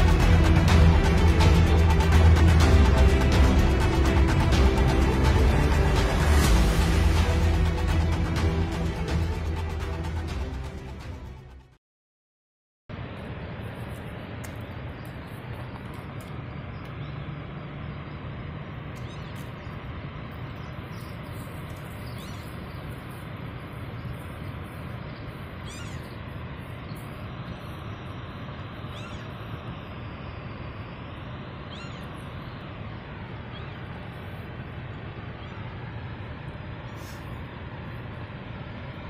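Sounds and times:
high rising bird calls: 0:18.8 - 0:19.8, 0:20.5 - 0:23.2, 0:23.8 - 0:36.0.

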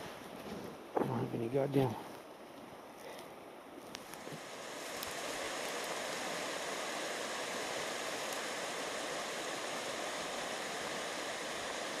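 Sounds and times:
steady rushing noise: 0:03.9 - 0:12.0.

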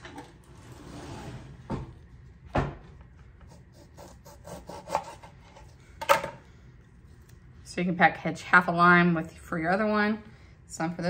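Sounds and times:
lime rubbing on cutting board: 0:03.4 - 0:05.6.

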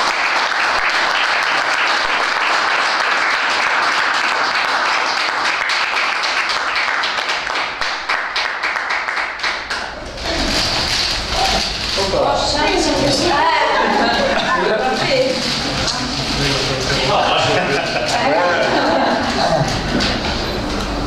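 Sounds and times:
many hands clapping: 0:00.0 - 0:10.9.

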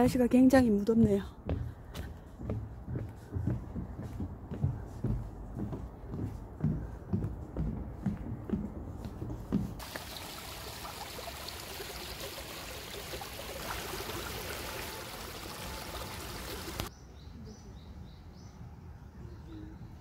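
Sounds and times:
stream flowing over stones: 0:09.8 - 0:16.9.

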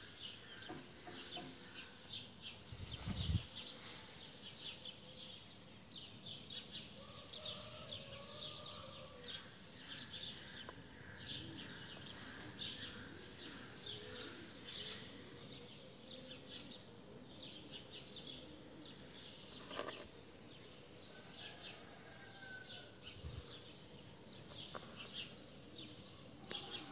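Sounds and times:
small birds chirping: 0:09.4 - 0:22.6.

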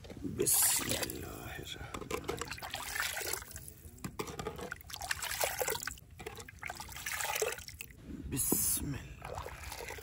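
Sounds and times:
milk pouring and splashing: 0:02.3 - 0:03.8, 0:04.7 - 0:07.9, 0:09.2 - 0:10.0.

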